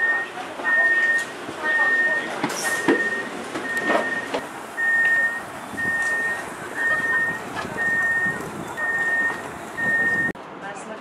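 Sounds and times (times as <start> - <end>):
train door warning beeps: 0.0 - 10.4.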